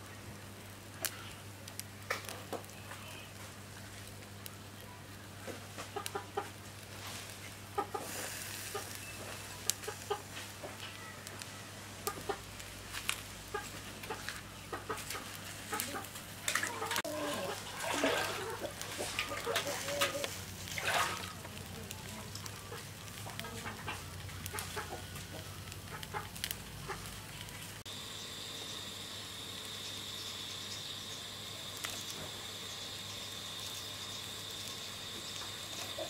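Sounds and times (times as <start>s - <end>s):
food crackling on a grill: 0.0s - 36.0s
chickens clucking: 5.5s - 11.4s, 12.0s - 12.6s, 13.4s - 20.4s, 21.0s - 27.2s, 33.0s - 36.0s.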